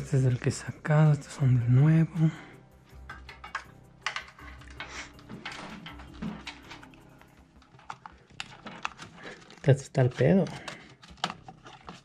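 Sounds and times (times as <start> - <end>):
clicks and knocks of computer parts: 3.0 - 12.0
rustling: 4.4 - 12.0.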